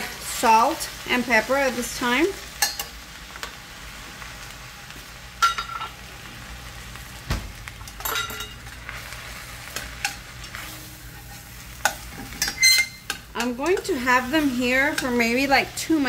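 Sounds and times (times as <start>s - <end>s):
soft steady sizzle: 0.0s - 16.0s
metal spoon clinking on pot: 8.0s - 8.6s, 11.8s - 14.0s.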